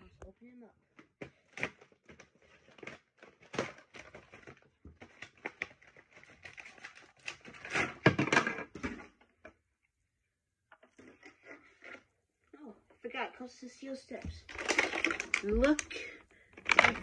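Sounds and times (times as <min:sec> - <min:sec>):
packaging crinkling and crackling: 0:00.9 - 0:09.2, 0:14.4 - 0:17.0.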